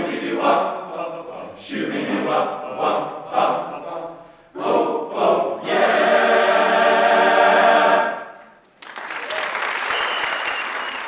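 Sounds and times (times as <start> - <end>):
men's choir singing a cappella: 0.0 - 8.4
audience applause: 8.6 - 11.0.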